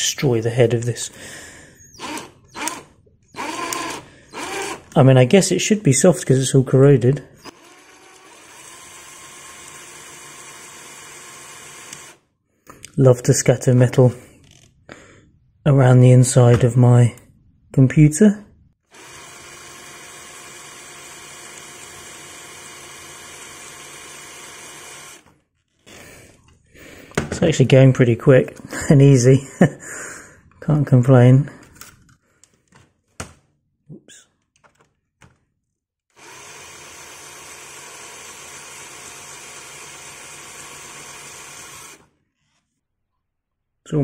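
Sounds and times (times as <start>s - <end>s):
cordless drill drilling metal: 1.8s - 5.0s, 7.4s - 12.2s, 18.9s - 26.0s, 36.1s - 42.1s.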